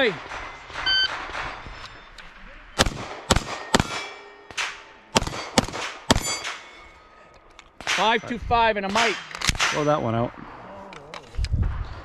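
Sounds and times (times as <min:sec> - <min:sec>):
sharp gunshots: 0:00.0 - 0:01.8, 0:02.8 - 0:06.8, 0:07.8 - 0:10.6
steel plate ringing: 0:03.5 - 0:07.2.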